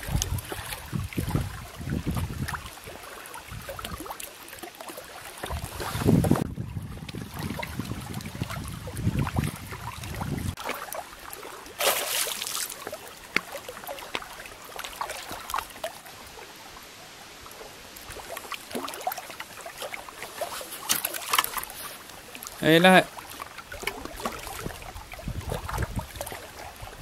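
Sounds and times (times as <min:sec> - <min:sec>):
wind rumble on microphone: 0:00.0 - 0:04.0, 0:05.5 - 0:10.6, 0:23.9 - 0:27.0
water splash: 0:00.0 - 0:16.4, 0:18.0 - 0:27.0
water lapping and trickling: 0:00.0 - 0:27.0.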